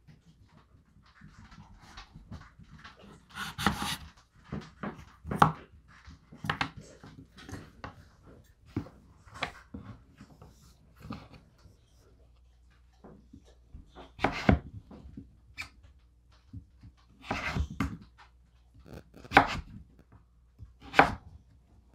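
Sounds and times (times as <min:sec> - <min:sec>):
knife crunching through squash: 0:03.1 - 0:04.1, 0:18.8 - 0:19.8.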